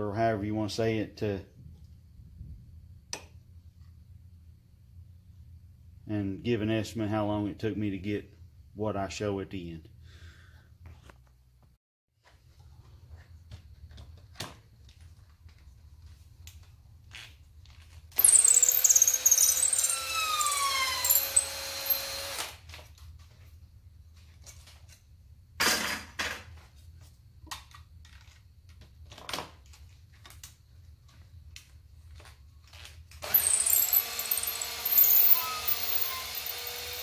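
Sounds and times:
power drill whining: 18.2s - 22.6s, 33.2s - 37.0s.

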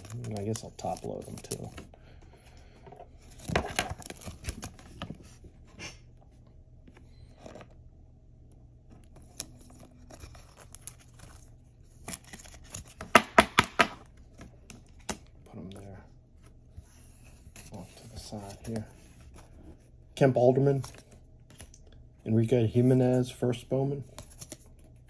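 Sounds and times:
plastic sleeve rustling and scraping: 16.5s - 19.8s.

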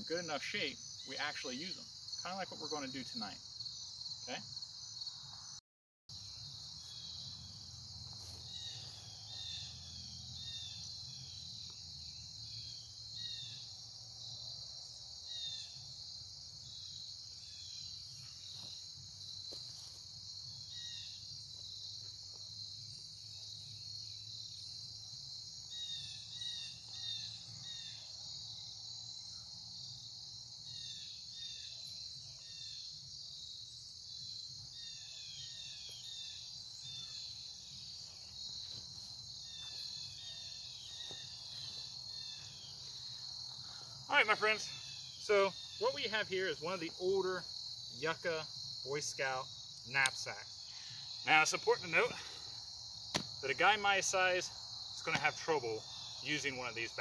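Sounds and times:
insects trilling: 0.0s - 57.0s.

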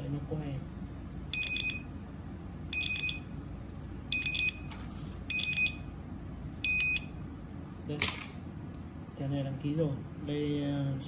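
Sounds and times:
buzzer beeping high pips: 2.7s - 3.2s, 4.1s - 4.7s, 5.3s - 5.9s, 6.6s - 7.1s.

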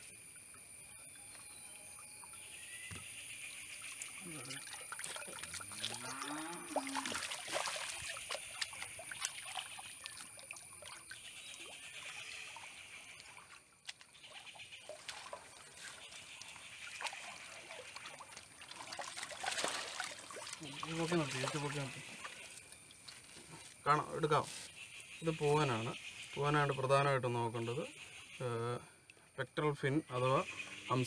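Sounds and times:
water splashing and trickling: 0.0s - 29.9s
fish thrashing in water: 3.8s - 13.6s, 14.3s - 23.3s.

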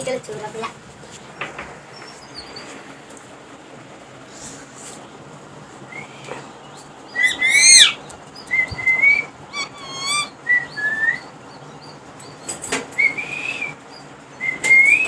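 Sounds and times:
parakeets calling: 1.2s - 3.0s, 5.8s - 15.0s
parakeet rattling trill: 6.9s - 15.0s.

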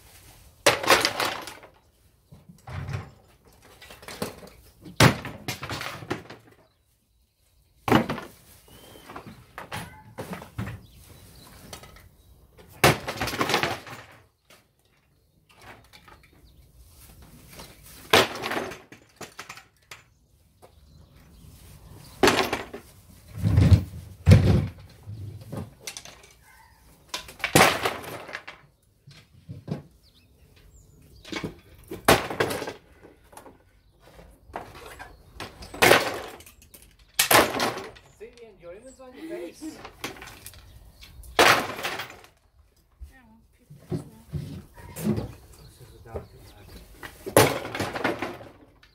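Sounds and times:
panels clattering onto paving: 0.5s - 6.9s, 7.8s - 21.4s, 22.0s - 42.6s, 43.7s - 48.9s
wooden panels cracking: 0.6s - 1.8s, 2.6s - 6.7s, 12.6s - 14.7s, 18.0s - 20.1s, 27.1s - 29.9s, 31.2s - 33.6s, 34.5s - 38.6s, 39.6s - 42.4s, 47.1s - 48.9s.

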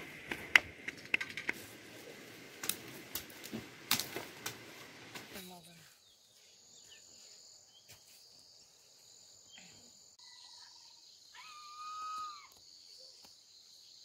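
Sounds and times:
high insect chorus: 3.9s - 14.0s.

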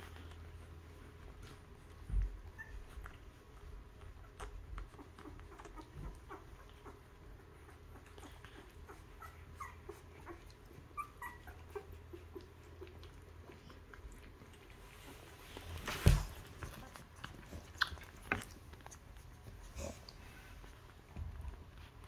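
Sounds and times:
puppies squeaking and whimpering: 2.2s - 3.4s, 4.1s - 13.8s.

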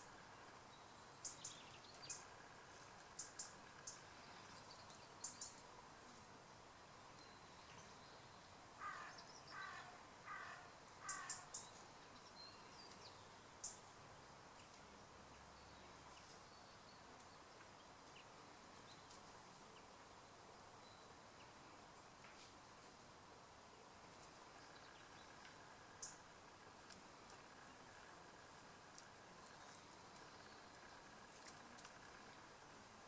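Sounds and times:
bird calling: 8.8s - 11.6s.

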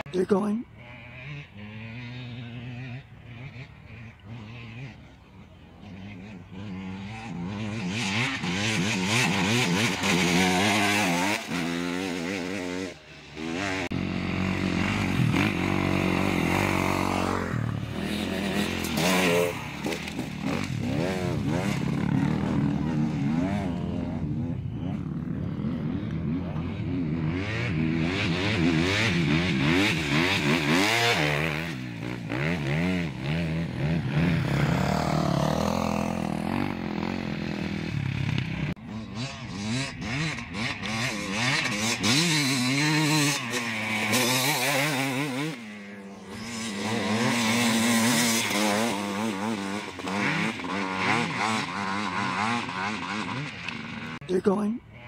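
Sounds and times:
motorcycles revving past: 0.0s - 55.0s.

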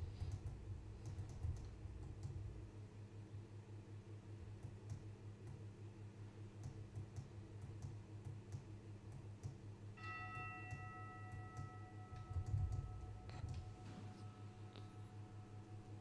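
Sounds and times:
low steady hum: 0.0s - 16.0s
altar bell ringing: 10.0s - 16.0s.

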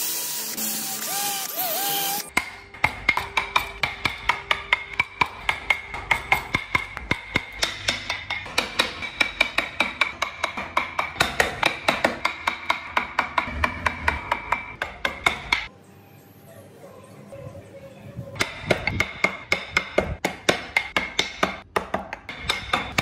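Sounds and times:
hammer tapping chisel into wood: 18.4s - 23.0s.

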